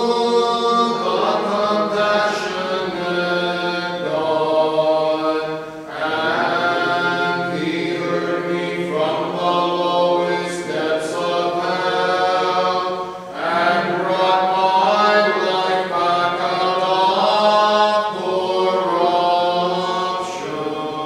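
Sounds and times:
voices chanting together: 0.0 - 21.0.

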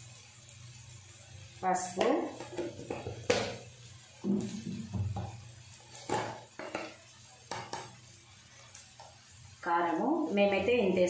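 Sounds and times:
utensils knocking and clinking: 5.9 - 7.9.

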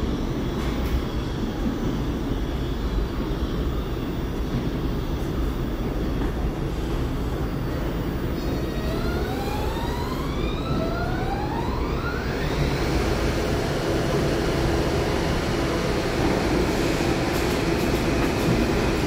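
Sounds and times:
subway train humming and rumbling: 0.0 - 19.0
rising electric whine: 8.6 - 17.8.

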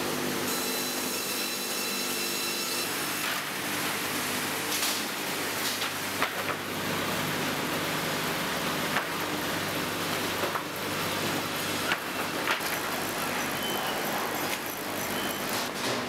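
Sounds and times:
sawmill machinery running: 0.0 - 16.0
boards knocking on conveyor: 5.6 - 6.7, 11.8 - 13.4.

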